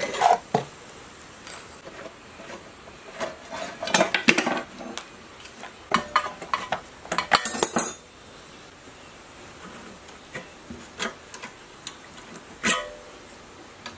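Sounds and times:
metal tools clinking: 6.0s - 8.2s.

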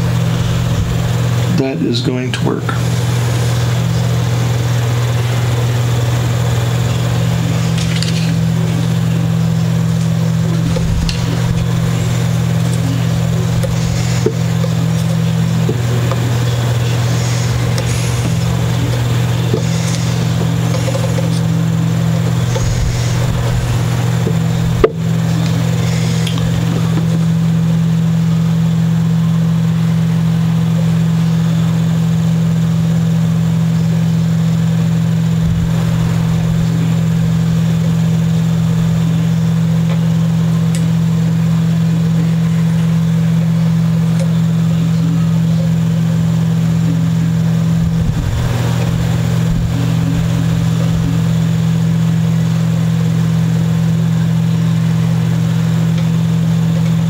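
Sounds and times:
low machine hum: 0.0s - 57.0s
handling ticks: 5.4s - 27.2s.

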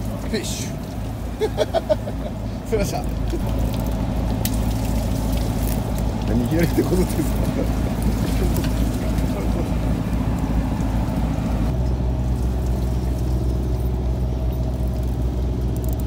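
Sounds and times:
boat engine humming: 0.0s - 16.0s
hiss of water and wind: 0.0s - 16.0s.

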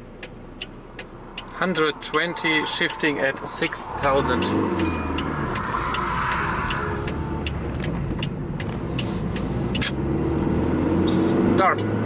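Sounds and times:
car engine running at low revs: 0.0s - 12.0s
light irregular clicks: 0.2s - 3.7s, 5.2s - 10.5s.

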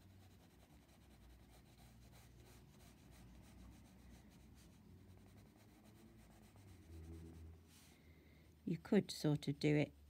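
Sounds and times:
pencil scratching on paper: 0.0s - 7.5s.

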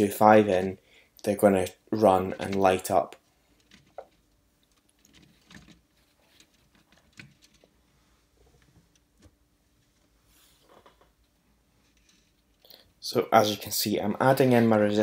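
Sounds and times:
small clicks and rustles of wires: 2.4s - 13.0s.

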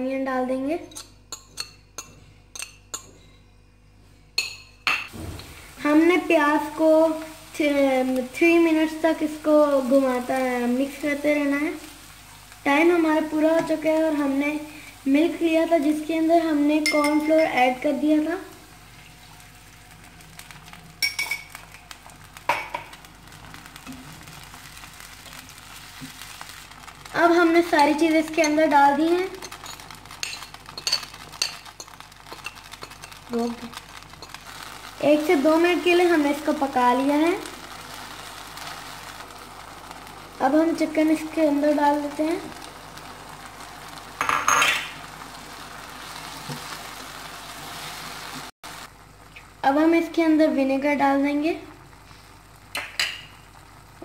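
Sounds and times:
faint sizzle: 0.0s - 54.0s
glass jar clinking on pan: 4.4s - 5.1s, 21.0s - 21.6s
liquid pouring into a pan: 27.8s - 40.5s
spatula stirring: 28.3s - 36.2s.

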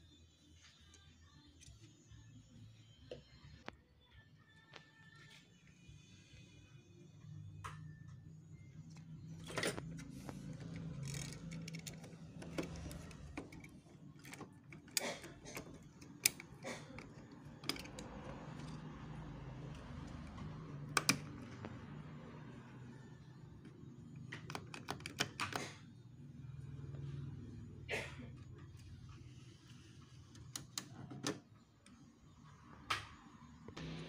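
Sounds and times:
plastic and metal parts clicking: 9.4s - 18.9s, 24.2s - 25.8s.

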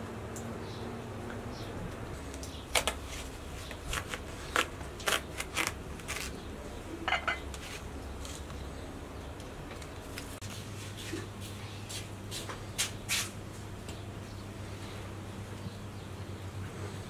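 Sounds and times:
knife cutting watermelon: 2.7s - 6.5s.

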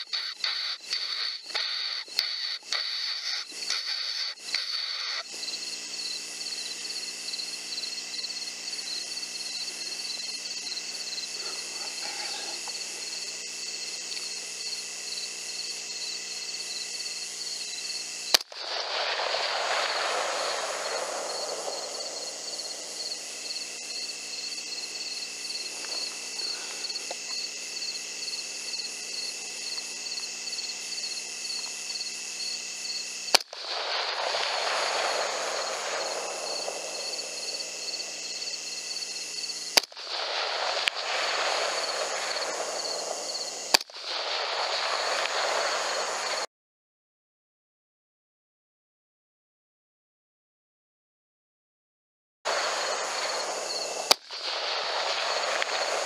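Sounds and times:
pulsing insect chorus: 0.0s - 46.5s, 52.5s - 56.0s
rifle shots with echo: 18.3s - 23.3s.

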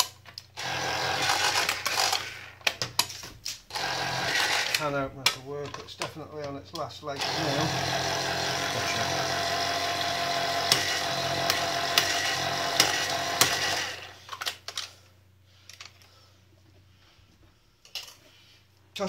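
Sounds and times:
electric can opener motor running: 0.5s - 2.6s, 3.7s - 4.9s, 7.2s - 14.2s
can opener clicking: 10.6s - 14.0s.

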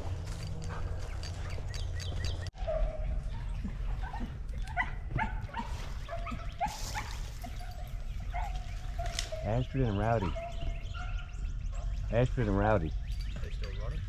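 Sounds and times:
distant dogs barking: 0.0s - 14.0s.

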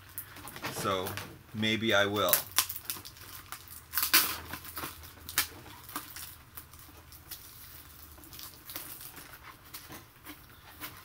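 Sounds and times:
packaging crackling: 2.2s - 10.0s.

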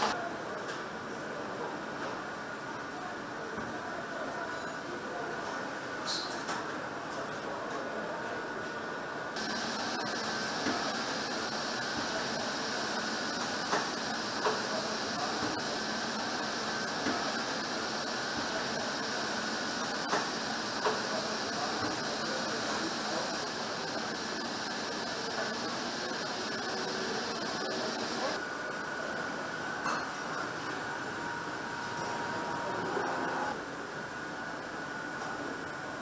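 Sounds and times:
factory background hiss: 9.4s - 29.6s.

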